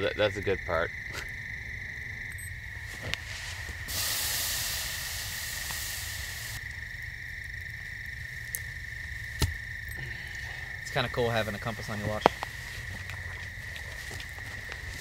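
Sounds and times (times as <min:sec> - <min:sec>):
insects droning: 0:00.0 - 0:15.0
liquid hissing on hot coals: 0:03.1 - 0:06.6.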